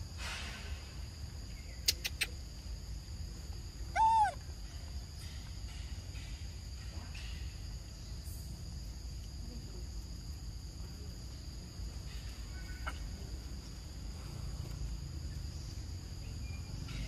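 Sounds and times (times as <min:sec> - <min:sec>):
insects buzzing: 0:00.0 - 0:17.0
macaque coo call: 0:03.9 - 0:04.4, 0:12.5 - 0:13.2.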